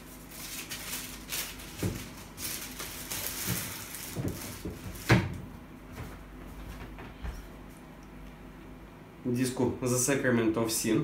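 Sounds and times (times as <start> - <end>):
packaging rustling: 0.0 - 5.2.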